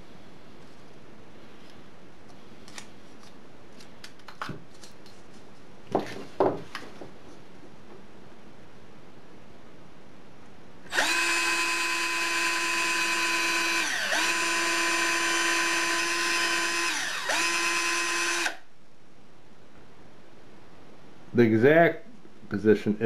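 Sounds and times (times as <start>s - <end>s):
cordless drill drilling into wood: 10.9s - 18.6s.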